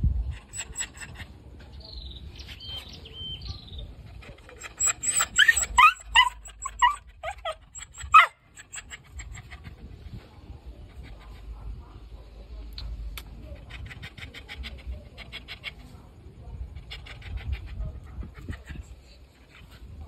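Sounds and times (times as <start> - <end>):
dog whimpering and yipping: 0.4 - 1.2, 4.4 - 9.4.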